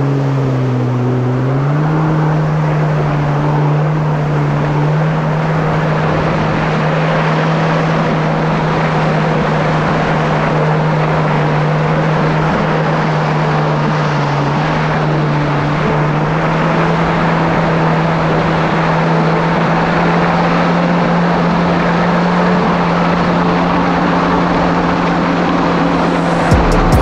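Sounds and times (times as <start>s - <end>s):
jet ski engine running: 0.0s - 27.0s
loud rushing noise: 24.6s - 27.0s.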